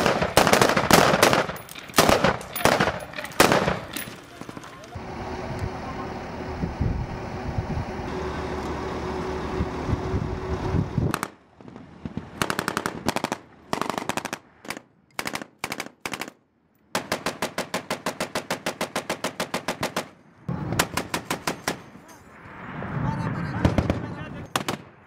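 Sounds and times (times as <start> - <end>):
machine guns firing bursts: 0.0 - 4.7, 12.4 - 16.4, 17.0 - 20.2, 20.8 - 21.8.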